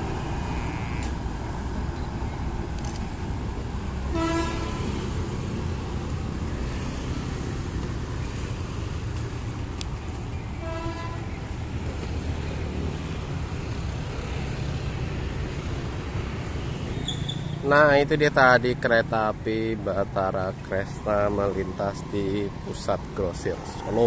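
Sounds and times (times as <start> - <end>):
motorbikes passing: 0.0 - 24.0
street traffic rumble: 0.0 - 24.0
railbus horn toots: 4.1 - 5.3, 10.6 - 11.4.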